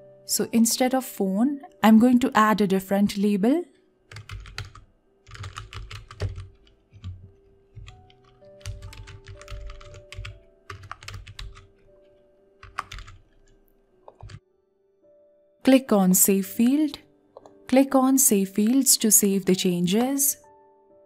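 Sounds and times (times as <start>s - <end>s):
soft background music: 0.0s - 21.0s
typing on a keyboard: 4.1s - 14.4s.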